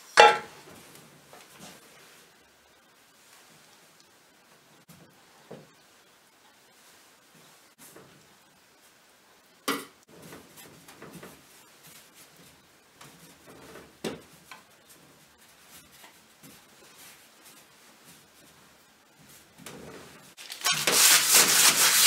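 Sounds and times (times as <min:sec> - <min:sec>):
hands rolling dough on worktop: 0:10.0 - 0:22.0.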